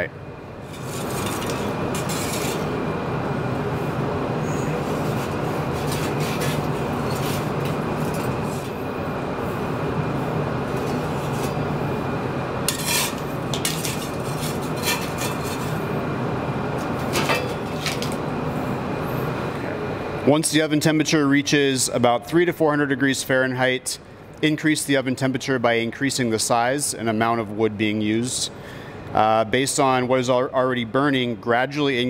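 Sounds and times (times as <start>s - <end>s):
steady mechanical hum: 0.0s - 32.0s
metal tool scraping on stone: 0.6s - 2.7s, 12.7s - 15.8s.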